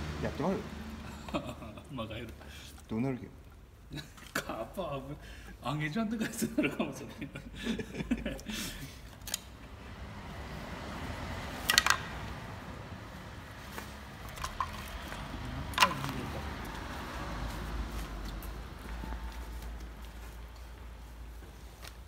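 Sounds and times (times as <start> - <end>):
firewood clacking: 11.5 - 12.5, 13.7 - 17.1.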